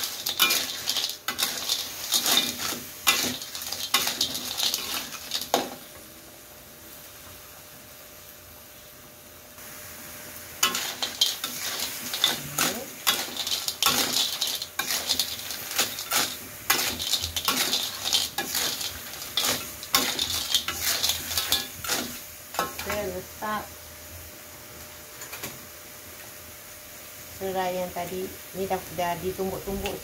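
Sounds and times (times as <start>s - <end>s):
spatula scraping a wok: 0.0s - 5.8s, 10.6s - 23.1s.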